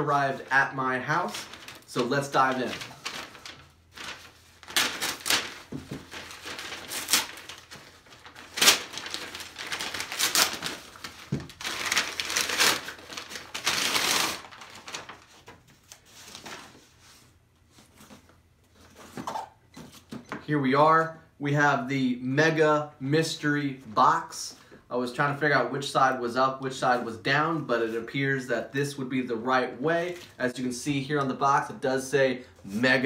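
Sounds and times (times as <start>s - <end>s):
plastic mailer crinkling and tearing: 0.1s - 16.9s.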